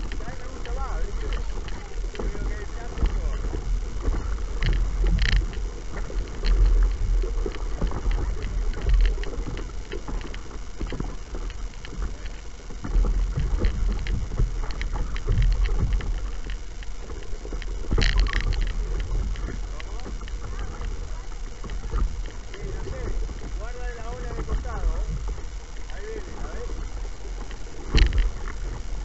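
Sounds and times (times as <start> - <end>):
water splashing around kayak: 0.0 - 29.0
wind rumble on microphone: 0.0 - 29.0.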